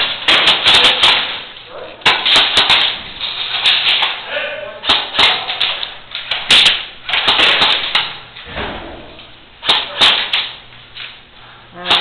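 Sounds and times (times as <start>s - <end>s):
airsoft guns firing: 0.0s - 3.0s, 4.8s - 8.2s, 9.6s - 10.6s.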